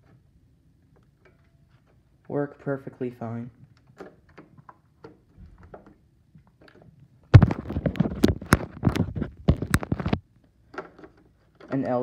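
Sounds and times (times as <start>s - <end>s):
phone rubbing and scraping: 7.4s - 10.2s.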